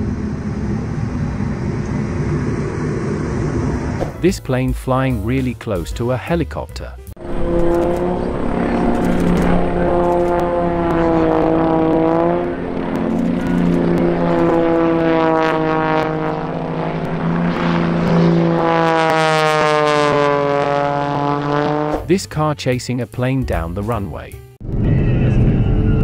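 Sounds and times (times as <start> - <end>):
propeller plane engine passing: 0.0 - 4.2, 7.2 - 22.1
steady low drone: 0.0 - 5.9, 7.1 - 22.4, 24.6 - 26.0.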